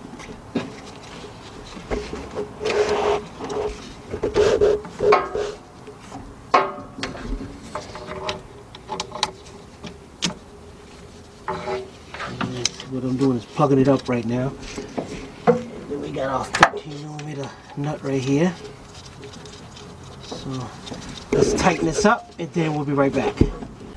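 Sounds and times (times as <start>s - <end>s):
clicks and knocks of plastic and metal: 16.4s - 23.9s.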